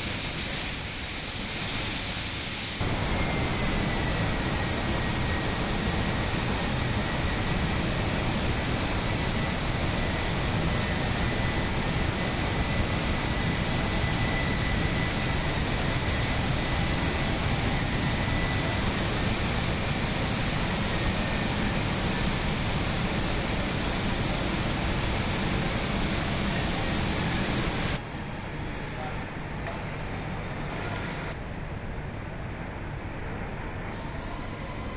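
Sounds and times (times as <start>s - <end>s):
paint spraying hiss and roar: 0.0s - 28.0s
faint high whine: 2.8s - 29.3s.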